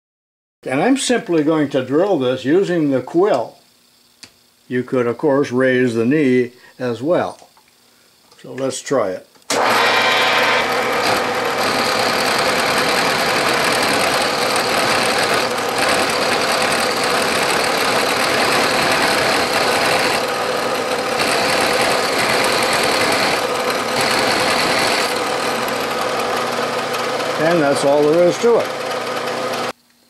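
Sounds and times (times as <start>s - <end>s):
milling machine cutting steel: 9.5s - 29.7s.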